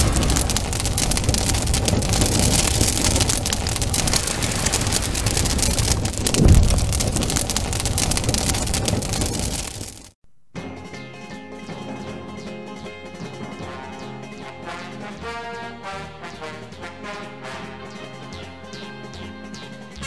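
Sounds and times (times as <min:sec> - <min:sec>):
low whooshing boom: 0:00.0 - 0:10.1
dense crackling hiss: 0:00.0 - 0:10.2.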